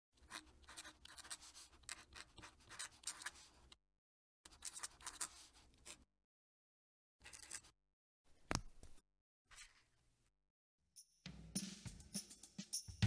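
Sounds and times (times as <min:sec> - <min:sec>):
pen nib scratching on paper: 0:00.2 - 0:03.8, 0:04.5 - 0:06.0.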